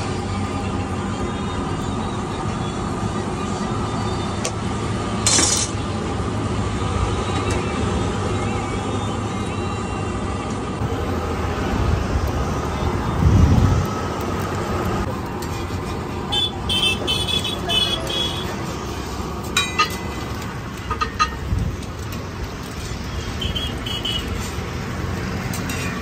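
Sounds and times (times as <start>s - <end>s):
street traffic: 0.0s - 26.0s
heavy vehicle passing: 10.8s - 26.0s.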